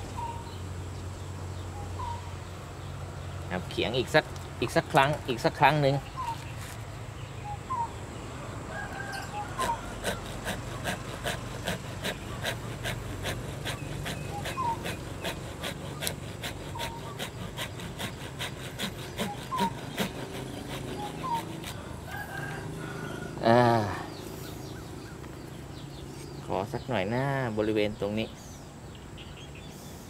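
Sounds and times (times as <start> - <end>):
hand saw cutting branch: 9.3 - 22.4.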